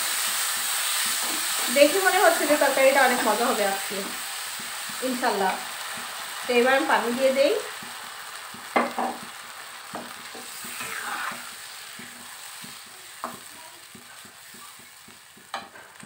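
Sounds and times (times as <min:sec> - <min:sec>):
liquid sizzling in a pan: 0:00.0 - 0:16.0
metal spatula stirring: 0:10.0 - 0:15.8.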